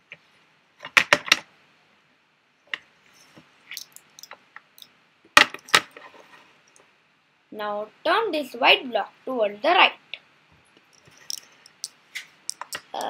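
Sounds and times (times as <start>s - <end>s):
plastic puzzle segments clicking: 3.8s - 4.9s, 11.0s - 13.0s.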